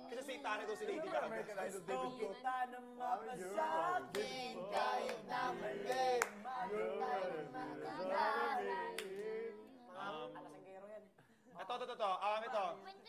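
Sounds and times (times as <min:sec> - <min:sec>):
young voices singing together: 0:00.2 - 0:10.7
sharp hand claps: 0:05.9 - 0:06.4.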